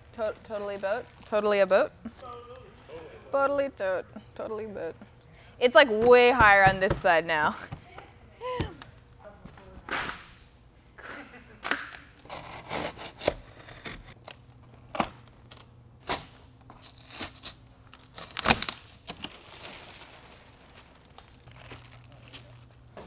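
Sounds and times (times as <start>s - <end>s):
plastic sheeting crinkling: 0.1s - 3.2s, 16.8s - 23.0s
cardboard ripping: 12.3s - 22.8s.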